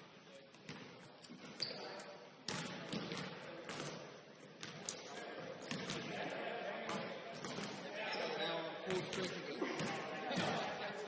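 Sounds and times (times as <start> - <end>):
basketball bouncing on court: 2.5 - 4.0.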